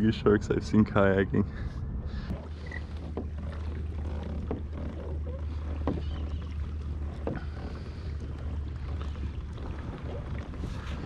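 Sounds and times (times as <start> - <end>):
steady low rumble: 0.0 - 5.8.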